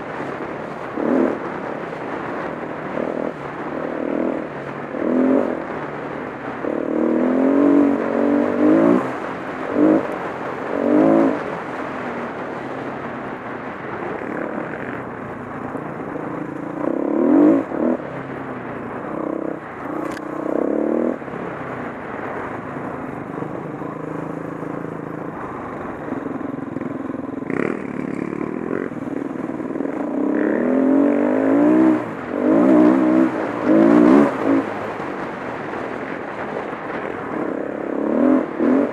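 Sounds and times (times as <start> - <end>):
motorcycle engine revving: 0.0 - 38.9.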